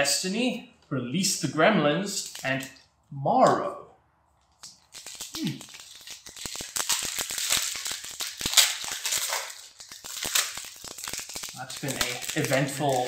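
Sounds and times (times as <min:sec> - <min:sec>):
foil wrapper crinkling: 0:02.2 - 0:02.7, 0:04.5 - 0:13.0.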